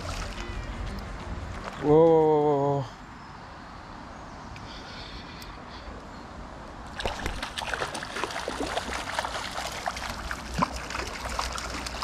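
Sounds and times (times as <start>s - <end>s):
water splashes and drips: 0.0s - 0.5s, 6.9s - 12.0s
river water flowing: 0.0s - 3.7s, 6.4s - 12.0s.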